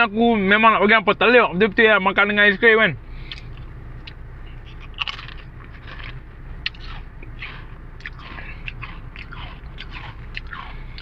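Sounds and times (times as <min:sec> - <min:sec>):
crisps crunching while chewed: 0:03.3 - 0:11.0.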